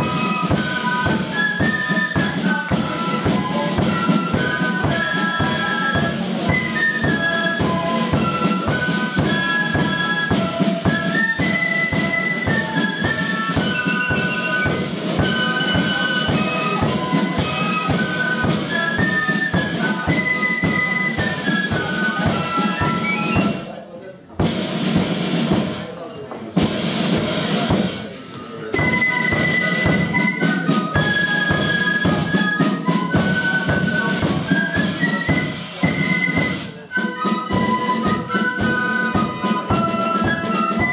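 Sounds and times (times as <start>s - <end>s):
flutes playing melody: 0.0s - 23.9s, 26.9s - 40.9s
rattling side drums: 0.0s - 26.0s, 26.6s - 40.9s.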